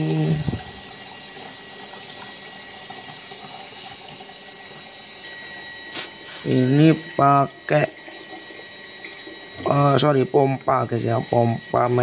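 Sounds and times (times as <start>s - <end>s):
faint thin high tone: 5.2s - 7.5s.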